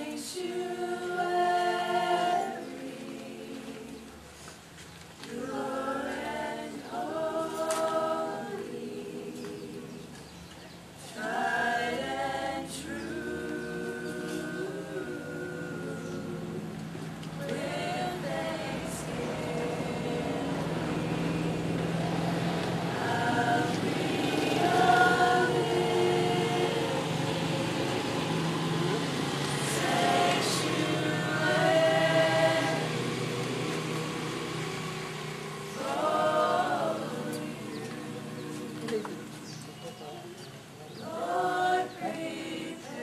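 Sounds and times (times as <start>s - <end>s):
women singing unaccompanied: 0.0s - 4.4s, 5.2s - 40.0s, 40.9s - 43.0s
steady low hum: 11.0s - 39.9s.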